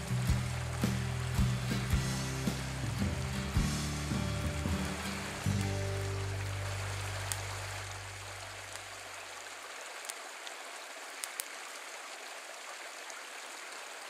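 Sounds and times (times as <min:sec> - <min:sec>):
creek flowing: 0:00.0 - 0:14.0
low sustained music note: 0:02.2 - 0:08.6
faint clicks: 0:11.2 - 0:11.6.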